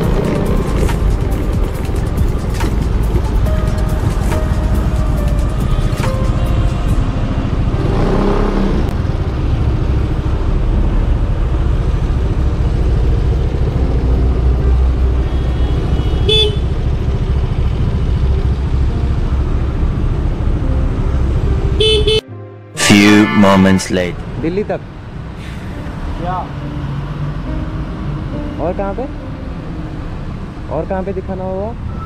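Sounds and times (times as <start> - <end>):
vehicle horn toot: 15.3 - 16.7, 21.8 - 23.9.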